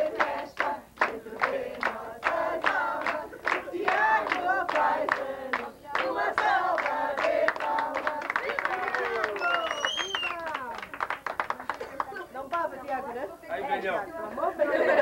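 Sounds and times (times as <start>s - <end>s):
group singing a celebration song: 0.0s - 9.3s
hand clapping: 0.2s - 13.0s.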